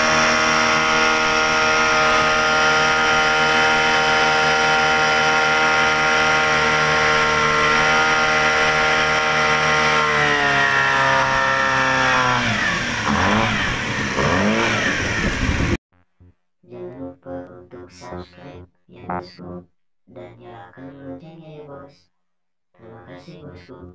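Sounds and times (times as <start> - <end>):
outboard motor running: 0.0 - 15.8.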